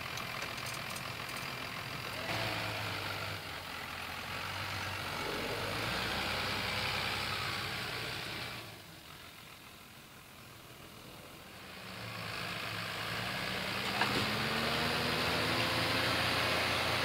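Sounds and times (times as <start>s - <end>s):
tractor diesel engine under load: 0.0s - 17.0s.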